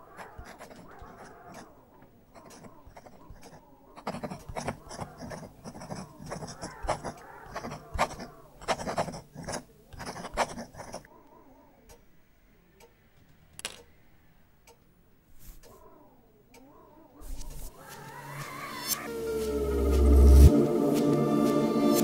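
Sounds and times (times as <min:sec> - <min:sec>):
pen nib scratching on paper: 0:00.0 - 0:01.7, 0:02.3 - 0:11.1, 0:17.2 - 0:19.1
sharp ticks: 0:02.4 - 0:09.2.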